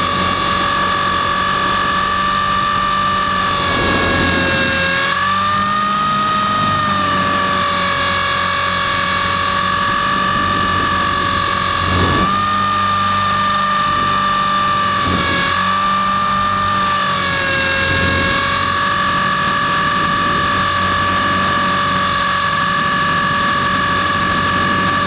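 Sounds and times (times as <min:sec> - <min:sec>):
rc helicopter motor whine: 0:00.0 - 0:25.0
rotor beat: 0:03.4 - 0:05.2
air whooshes: 0:03.6 - 0:05.0, 0:11.7 - 0:12.5.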